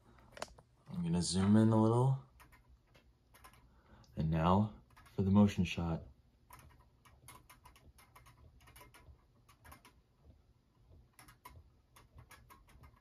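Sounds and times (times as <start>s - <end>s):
desk toy clicking and ticking: 0.3s - 13.0s.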